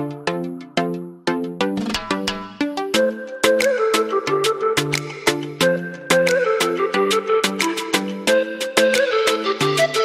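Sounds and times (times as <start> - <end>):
quick percussive beat: 1.8 - 3.0.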